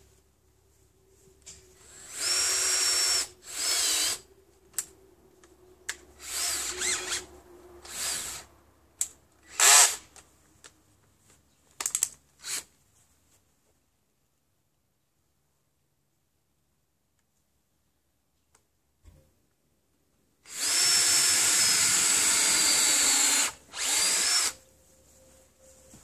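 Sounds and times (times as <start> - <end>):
cordless drill bursts: 1.8 - 4.3, 6.2 - 8.5, 9.4 - 10.1, 20.4 - 24.6
small clicks: 11.7 - 12.2.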